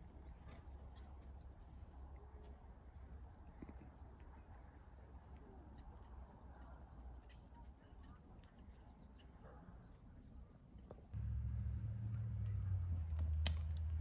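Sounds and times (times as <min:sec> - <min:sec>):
faint low rumble: 0:11.2 - 0:14.0.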